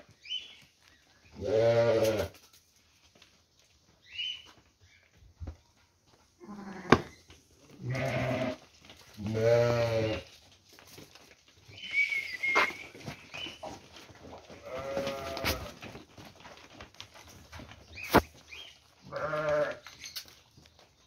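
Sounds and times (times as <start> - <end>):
sheep bleating: 1.4 - 2.3, 6.4 - 7.1, 7.8 - 10.3, 14.6 - 15.7, 19.1 - 19.8.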